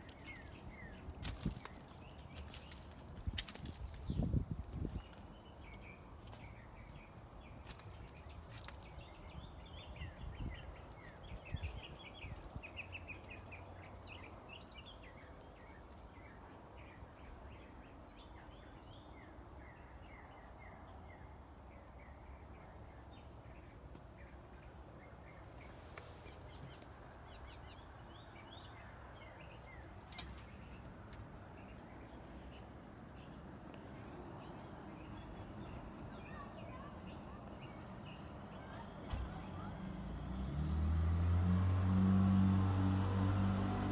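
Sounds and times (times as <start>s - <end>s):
birds chirping: 0.0s - 40.5s
faint background noise: 0.0s - 43.9s.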